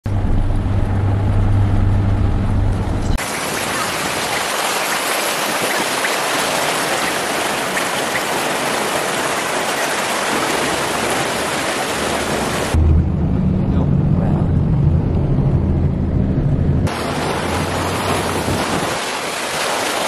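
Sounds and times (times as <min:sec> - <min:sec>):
vehicle engine drone: 0:00.0 - 0:03.2, 0:10.9 - 0:19.0
floodwater rushing: 0:03.2 - 0:12.8, 0:16.9 - 0:20.0.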